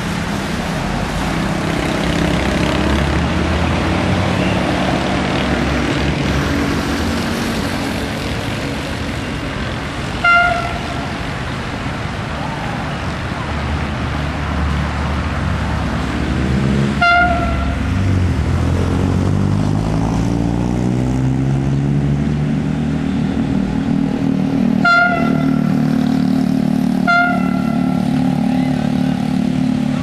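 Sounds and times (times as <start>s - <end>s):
diesel railcar engine rising: 0.0s - 30.0s
railcar horn toots: 10.2s - 11.1s, 17.0s - 18.0s, 24.8s - 25.8s, 27.0s - 28.1s.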